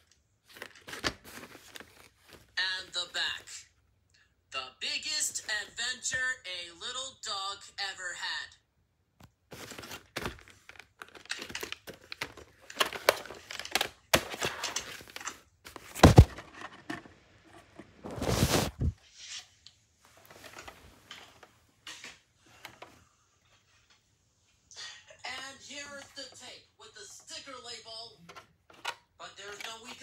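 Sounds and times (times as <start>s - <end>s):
plastic case clicks and rustles: 9.6s - 17.9s, 28.3s - 30.0s.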